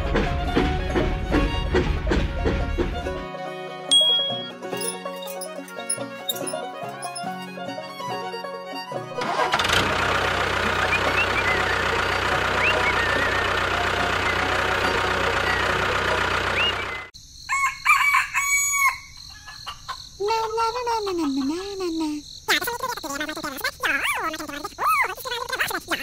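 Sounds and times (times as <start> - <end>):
short high chirps: 3.9 - 4.9.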